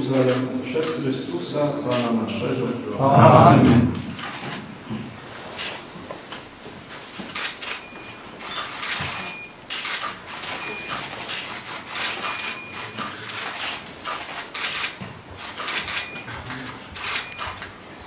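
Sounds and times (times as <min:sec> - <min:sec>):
camera shutters clicking: 0:00.1 - 0:01.0, 0:01.9 - 0:02.2, 0:04.0 - 0:04.7, 0:07.3 - 0:17.8
short high camera beeps: 0:07.4 - 0:13.5, 0:15.6 - 0:17.7.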